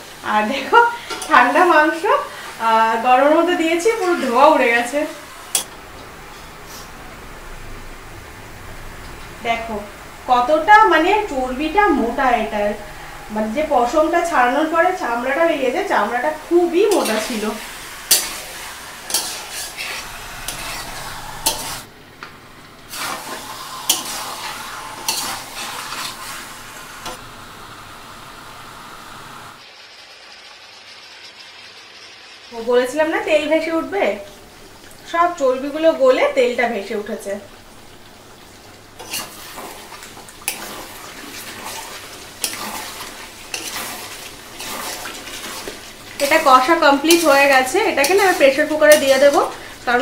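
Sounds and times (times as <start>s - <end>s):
meat sizzling in pan: 0.0s - 5.7s, 10.1s - 21.9s, 22.8s - 32.7s, 37.5s - 50.0s
spatula scraping pan: 3.8s - 5.7s, 16.8s - 21.9s, 22.9s - 27.2s, 39.0s - 50.0s.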